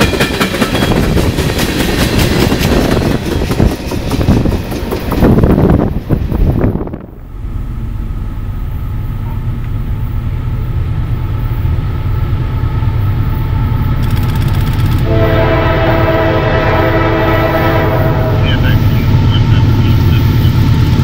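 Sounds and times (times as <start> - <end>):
diesel freight train rumble: 0.0 - 21.0
passing train noise: 0.0 - 21.0
train air horn chord: 15.0 - 18.8.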